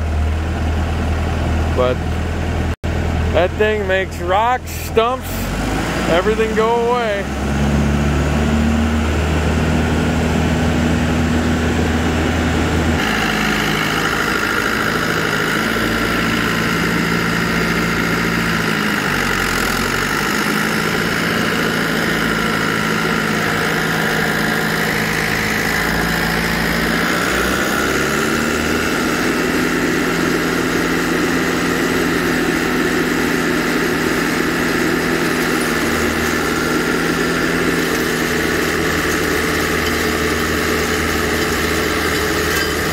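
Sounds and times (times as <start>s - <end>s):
tractor engine: 0.0s - 42.9s
tiller grinding rocks: 3.4s - 7.3s, 13.0s - 42.9s.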